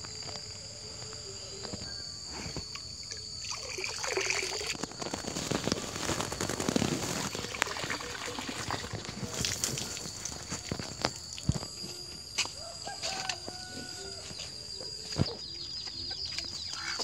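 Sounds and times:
water sloshing and splashing: 2.7s - 5.2s, 7.0s - 11.5s.

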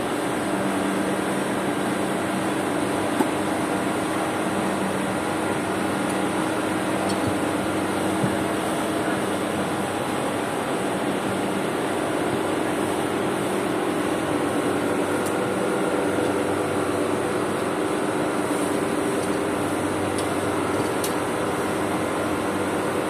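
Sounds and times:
even noise wash: 0.0s - 23.0s
mechanical hum with held tones: 0.0s - 23.0s.

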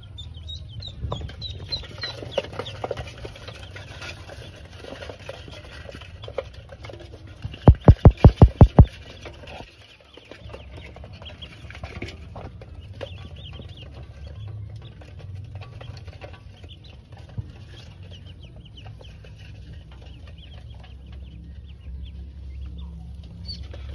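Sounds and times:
ducklings peeping: 0.0s - 6.5s, 7.5s - 23.9s
loud knocks on metal basin: 7.7s - 8.9s.

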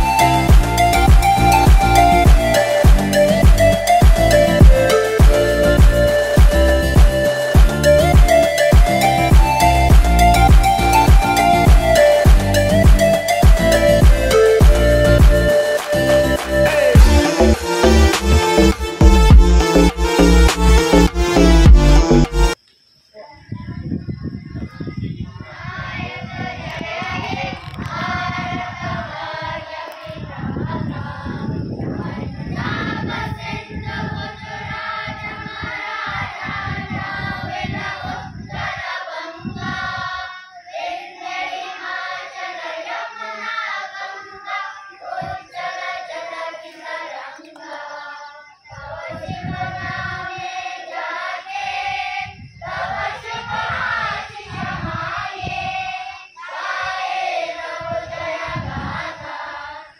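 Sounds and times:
group singing in unison: 0.0s - 22.6s, 25.5s - 59.9s
wind rumbling on microphone: 23.4s - 40.2s, 48.6s - 59.9s.

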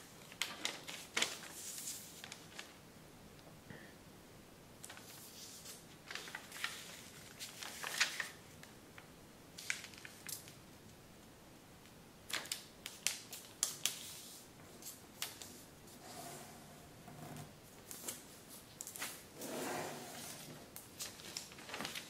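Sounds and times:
paper crackling and rustling: 0.2s - 2.8s, 4.8s - 8.8s, 9.6s - 10.6s, 20.2s - 22.0s.

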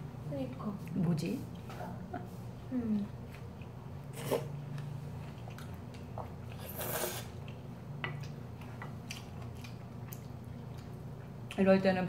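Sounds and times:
low steady hum: 0.0s - 12.0s
chewing: 3.0s - 11.6s
noodles slurped: 6.6s - 7.5s.

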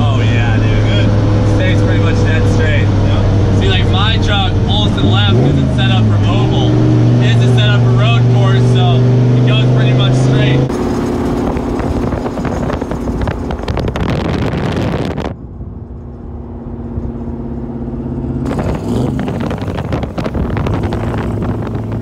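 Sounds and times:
truck engine drone: 0.0s - 22.0s
wind rushing over microphone: 10.6s - 22.0s.

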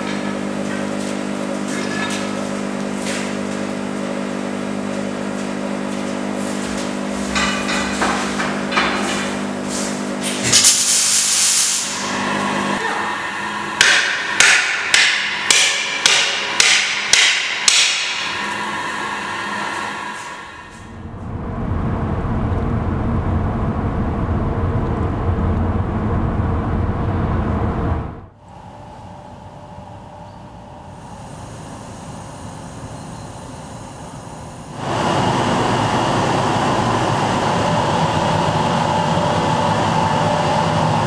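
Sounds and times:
steady hum: 11.8s - 41.0s.

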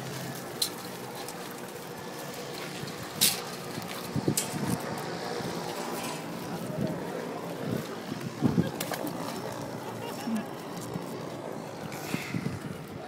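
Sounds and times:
steady background hum: 0.0s - 13.0s
wire trap clattering on concrete: 2.8s - 3.6s.

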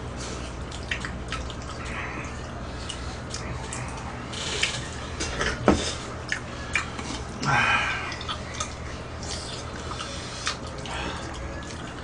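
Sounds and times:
wet chewing: 0.1s - 12.0s.

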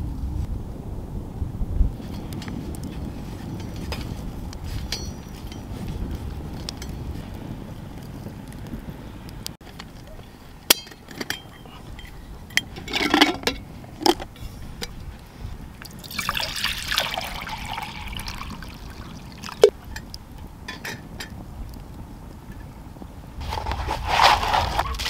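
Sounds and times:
liquid pouring into metal pot: 15.8s - 19.7s.

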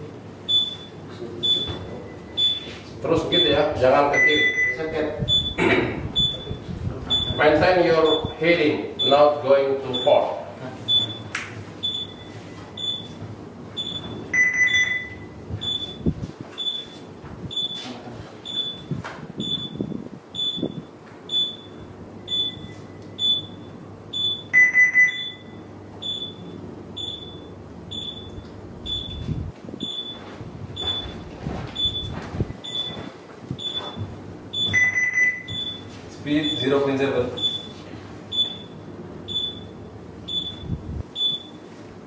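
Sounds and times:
short high-pitched alarm beeps: 0.5s - 2.8s, 3.4s - 5.6s, 6.2s - 7.4s, 8.0s - 8.4s, 9.9s - 10.3s, 10.9s - 13.2s, 13.8s - 17.8s, 18.4s - 33.0s, 33.6s - 36.7s, 37.4s - 41.6s
longer lower alarm tone: 13.8s - 16.0s, 20.4s - 31.2s, 34.6s - 35.8s.

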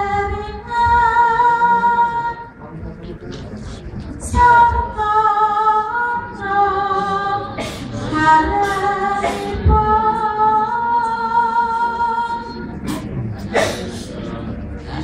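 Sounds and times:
woman singing into a microphone: 0.0s - 2.5s, 4.2s - 12.7s.

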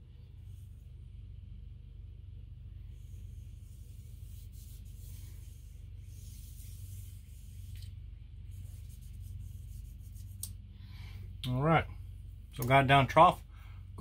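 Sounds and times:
steady low hum: 0.0s - 14.0s
applicator stick scratchy rubbing: 8.5s - 10.5s.

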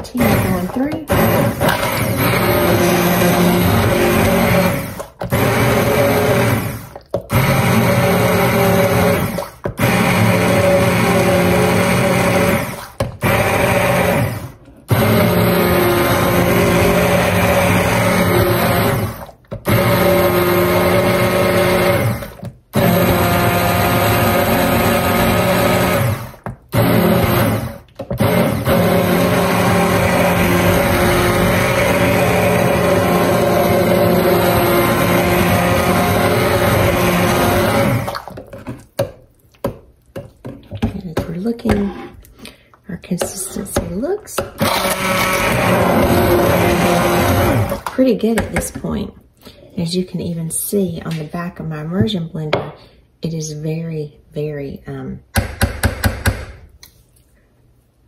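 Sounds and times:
immersion blender motor: 0.0s - 38.4s, 44.4s - 47.9s.

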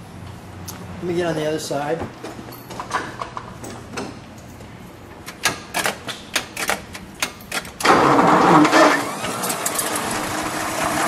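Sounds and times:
car engine cranking and firing: 5.3s - 11.0s.

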